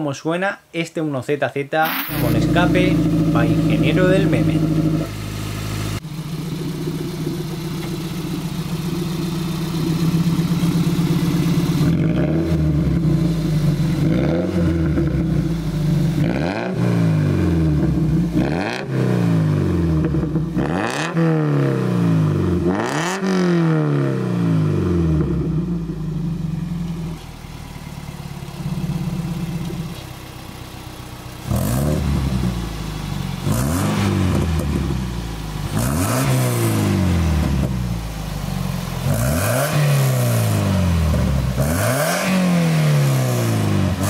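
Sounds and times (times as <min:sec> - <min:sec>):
car engine idling: 0:01.8 - 0:20.8, 0:24.4 - 0:41.9
engine throttle blips: 0:01.8 - 0:30.8.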